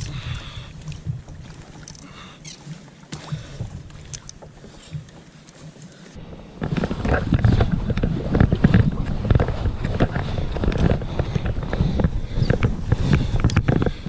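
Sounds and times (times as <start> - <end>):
small knocks of fishing reel: 0.0 - 5.9, 6.6 - 14.0
rumbling rustling at microphone: 3.2 - 14.0.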